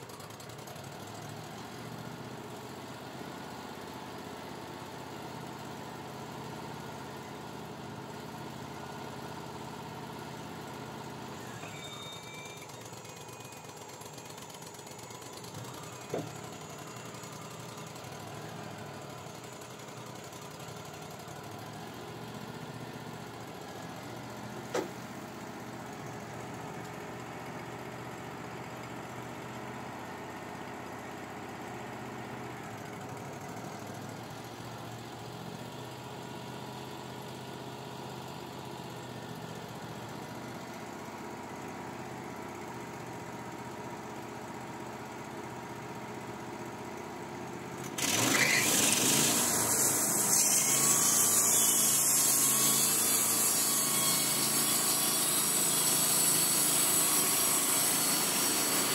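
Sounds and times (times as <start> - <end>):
sawmill running: 0.0 - 58.9
band blade sawing log: 47.9 - 58.9.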